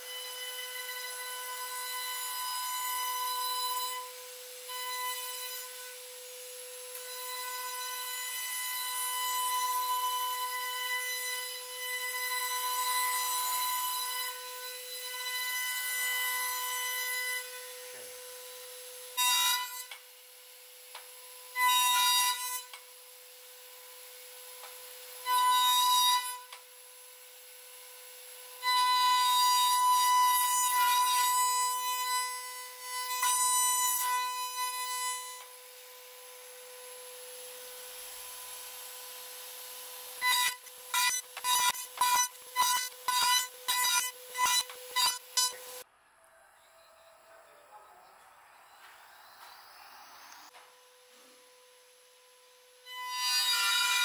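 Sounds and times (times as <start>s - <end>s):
router cutting into wood: 27.8s - 45.8s, 52.8s - 54.0s
router spindle whining: 34.0s - 54.0s.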